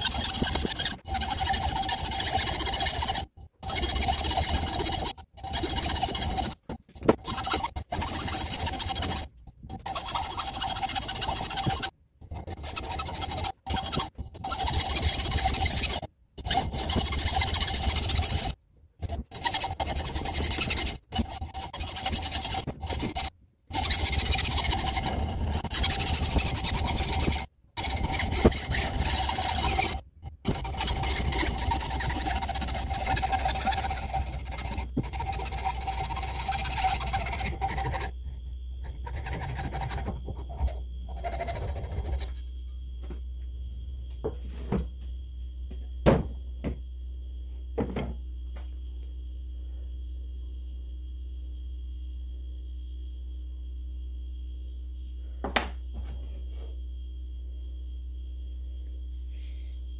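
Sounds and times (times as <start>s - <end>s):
hacksaw cutting wood: 0.0s - 38.1s.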